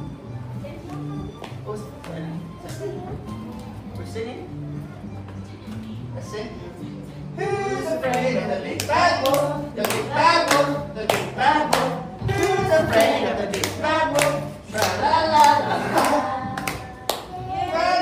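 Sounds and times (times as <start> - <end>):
voices singing: 7.3 - 18.0
bass line: 7.4 - 18.0
hands clapping in time: 8.1 - 17.4.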